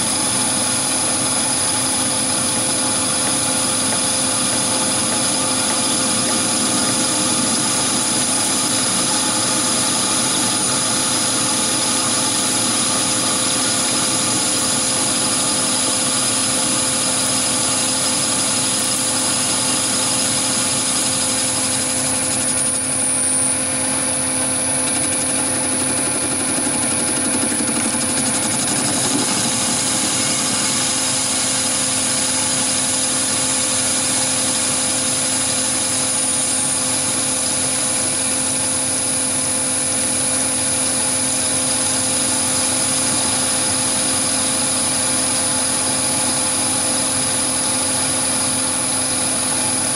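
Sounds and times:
lathe machine hum: 0.0s - 49.9s
high whine: 21.8s - 33.6s.

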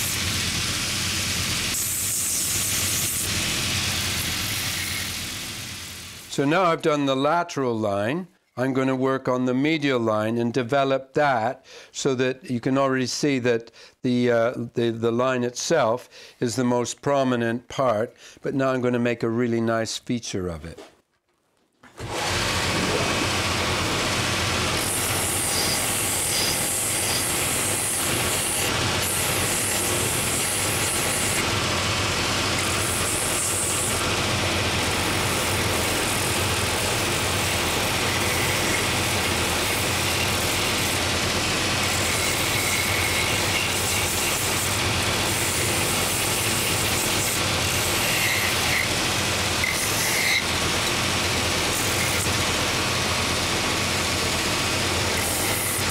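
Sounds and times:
belt sander grinding wood: 0.0s - 6.4s, 22.0s - 55.9s.

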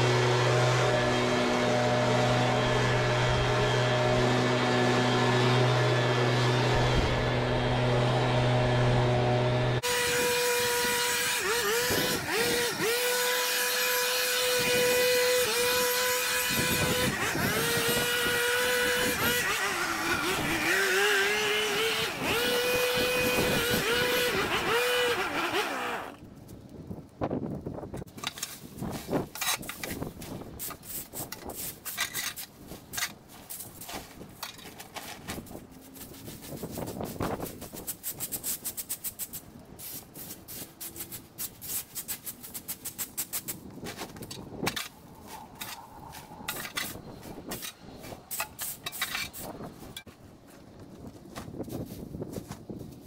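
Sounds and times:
tools through dry leaves: 0.0s - 26.7s, 28.0s - 53.0s
rake and shovel scraping stone: 28.0s - 50.2s.

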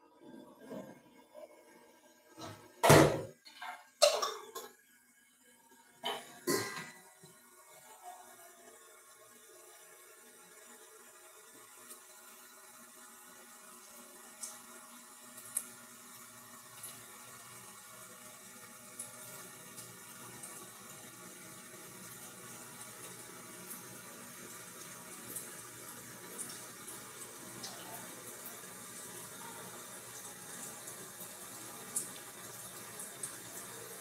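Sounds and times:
food sizzling in a frying pan: 2.2s - 34.0s
hot oil spitting: 2.8s - 4.8s.

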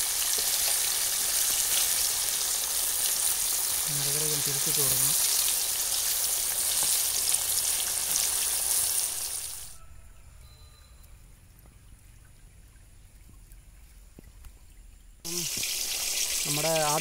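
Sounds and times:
chicken deep-frying in oil: 0.0s - 10.1s, 15.2s - 17.0s.

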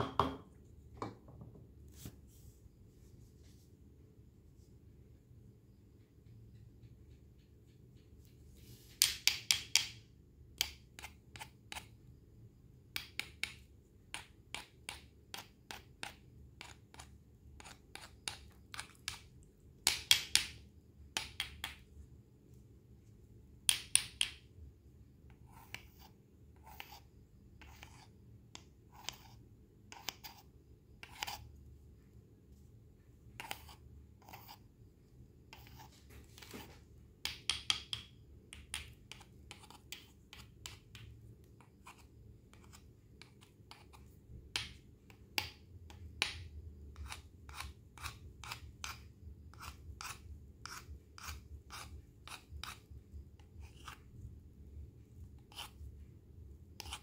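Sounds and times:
knife cutting on a cutting board: 28.9s - 31.5s, 47.0s - 52.8s, 53.6s - 54.0s, 55.4s - 55.8s, 56.8s - 57.0s.

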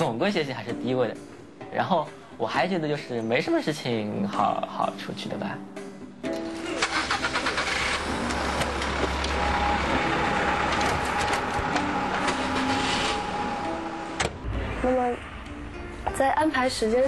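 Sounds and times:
passing traffic: 6.3s - 17.0s
vehicle engines rumbling: 7.2s - 17.0s.

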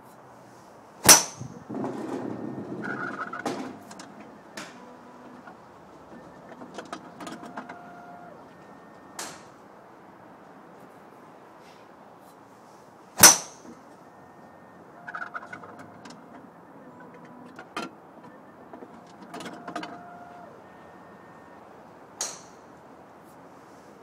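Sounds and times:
golf club striking ball: 1.0s - 2.4s, 13.2s - 13.6s, 22.2s - 22.7s
mechanical clattering and rattling: 1.1s - 7.8s.

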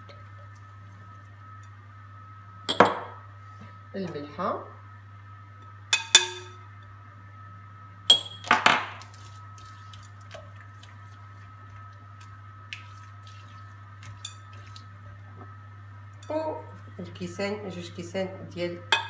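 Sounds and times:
steady low hum: 0.0s - 19.0s
clinks against glass bowl: 2.7s - 3.1s, 6.0s - 6.6s, 8.1s - 8.6s.

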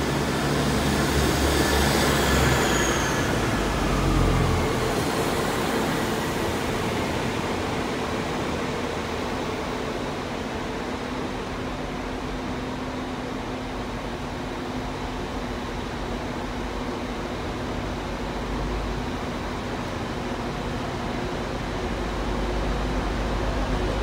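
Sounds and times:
train rumble: 0.0s - 24.0s.

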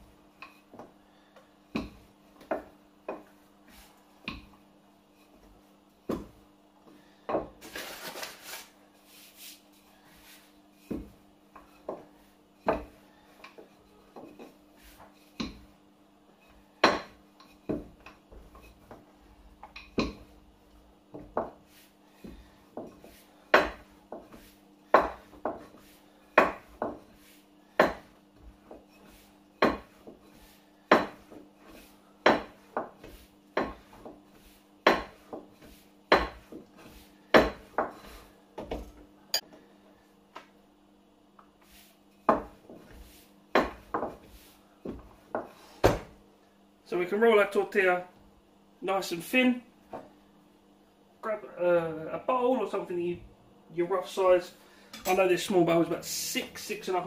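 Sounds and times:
rolling pin rolling dough: 0.0s - 39.0s, 41.4s - 46.2s.

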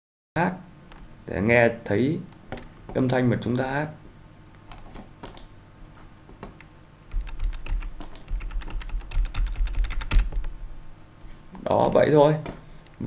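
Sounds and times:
keyboard key clicks: 6.4s - 10.5s.

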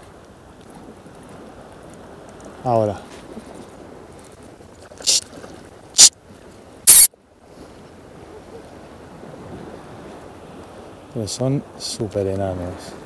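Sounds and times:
fishing reel drag buzzing: 5.0s - 5.2s, 6.9s - 7.1s.

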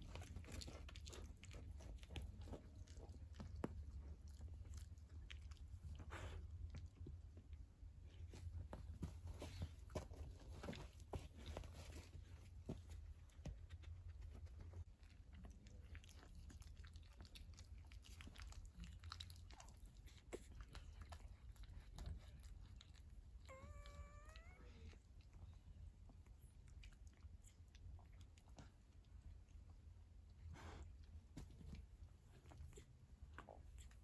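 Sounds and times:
puppy whimper: 23.5s - 25.0s.

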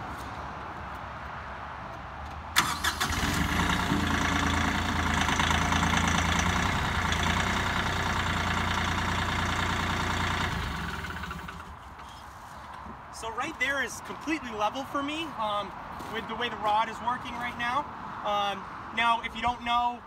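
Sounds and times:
tractor diesel engine running: 2.6s - 11.9s
front loader lifting bucket: 2.6s - 12.2s.

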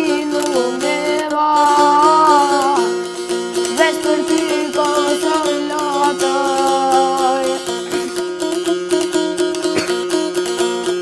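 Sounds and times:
child singing: 0.0s - 3.0s, 3.6s - 7.8s
lute strummed with drone: 0.0s - 11.0s.

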